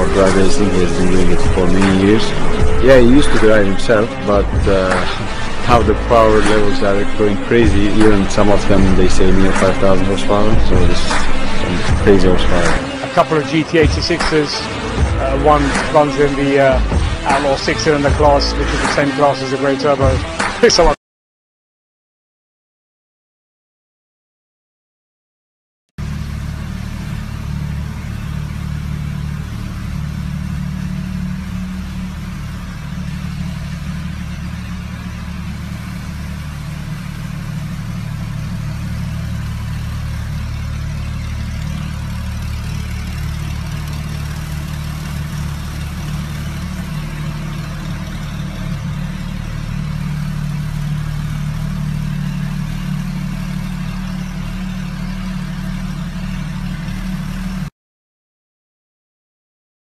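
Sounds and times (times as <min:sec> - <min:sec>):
car engine idling: 0:00.0 - 0:21.0, 0:26.0 - 0:57.7.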